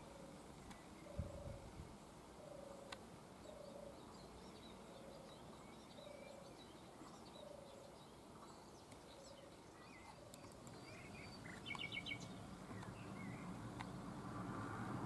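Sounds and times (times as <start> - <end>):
small birds chirping: 0.0 - 14.2.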